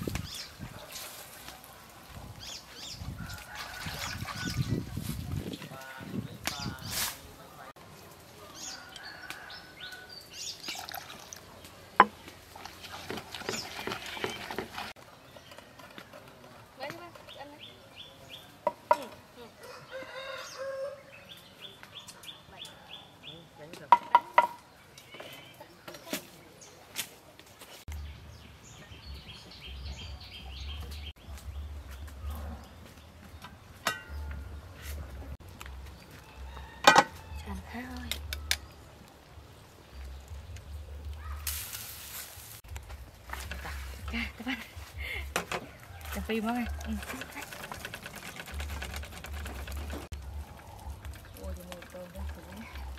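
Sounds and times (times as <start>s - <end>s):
bird chirping: 27.9s - 34.8s
metal pot lid clanking: 33.8s - 34.3s.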